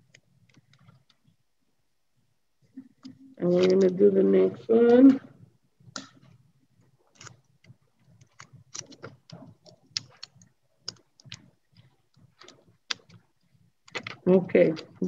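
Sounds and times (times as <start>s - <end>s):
paper crinkling and clicking: 7.0s - 15.0s.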